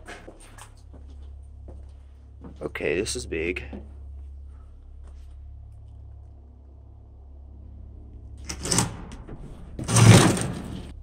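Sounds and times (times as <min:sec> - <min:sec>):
steady low hum: 0:00.0 - 0:11.0
door scraping open: 0:08.4 - 0:11.0.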